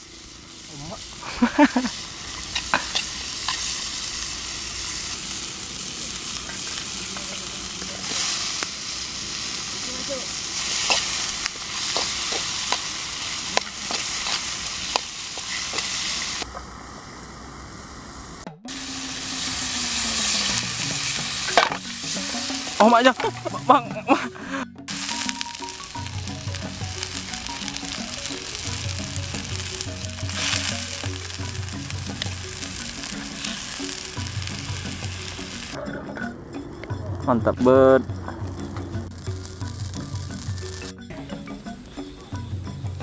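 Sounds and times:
vegetables sizzling in a wok: 0.0s - 35.8s, 37.6s - 41.0s
metal spatula scraping pan: 2.3s - 3.8s, 10.6s - 16.4s.

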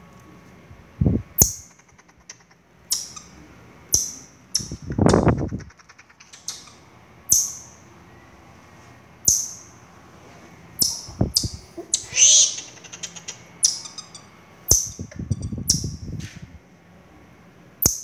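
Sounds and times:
high-pitched marmoset calls: 1.4s - 7.8s, 9.2s - 9.7s, 10.8s - 16.1s, 17.8s - 18.0s.

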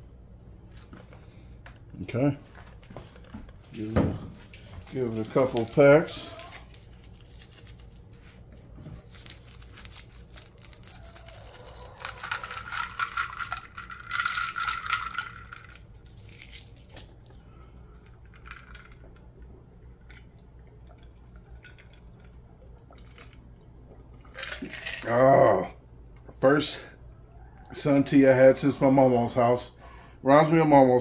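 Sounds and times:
paper packets tearing: 3.6s - 8.2s, 9.0s - 14.1s.

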